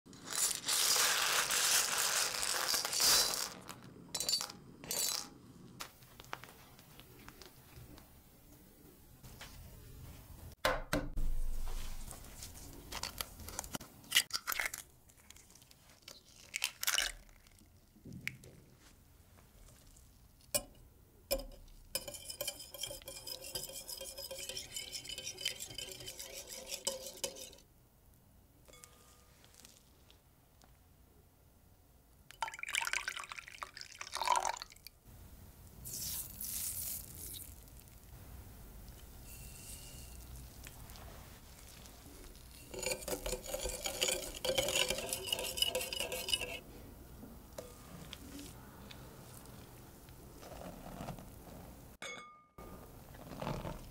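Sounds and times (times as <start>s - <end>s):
milk pouring and splashing: 32.4s - 34.9s
sugar sprinkling hiss: 35.8s - 38.2s, 38.9s - 42.8s.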